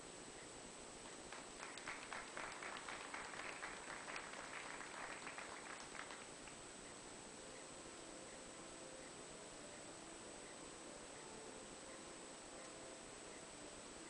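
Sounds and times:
small audience applauding: 1.2s - 6.6s.

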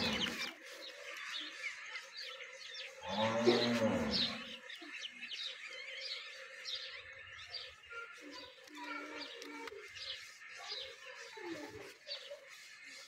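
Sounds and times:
small birds chirping: 0.0s - 13.0s
cow mooing: 3.0s - 4.5s.

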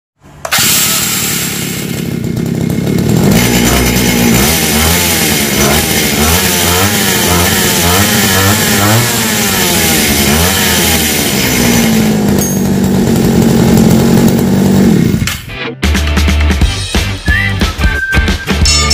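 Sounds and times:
small two-stroke engine revving: 0.5s - 15.3s.

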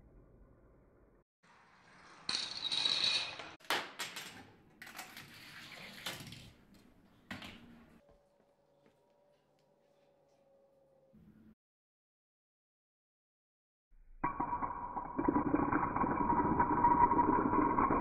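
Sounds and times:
pieces clicking and knocking: 2.3s - 6.5s.

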